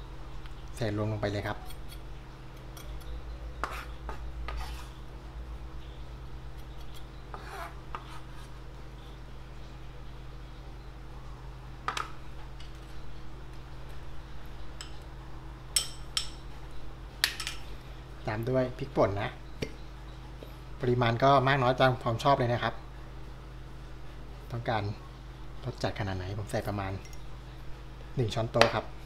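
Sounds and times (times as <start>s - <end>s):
steady low hum: 0.0s - 29.0s
knife scraping cutting board: 2.8s - 5.0s, 6.6s - 8.6s.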